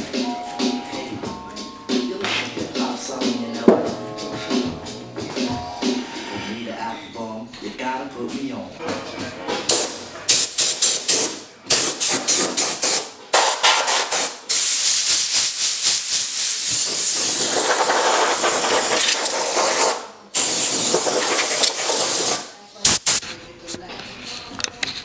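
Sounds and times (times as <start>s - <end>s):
hand tool scraping sheet metal: 16.8s - 22.4s.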